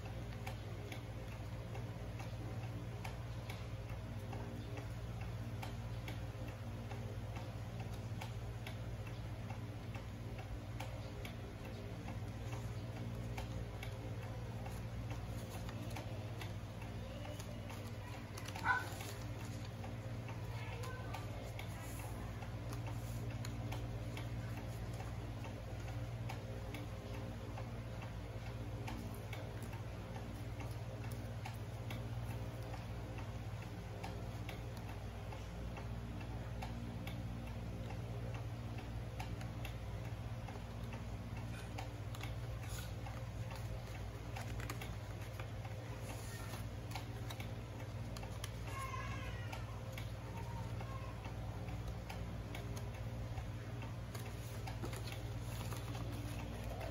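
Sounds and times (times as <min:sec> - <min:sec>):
steady low hum: 0:00.0 - 0:56.9
paper rustling and clicking: 0:17.2 - 0:19.8, 0:41.5 - 0:48.9, 0:54.1 - 0:56.9.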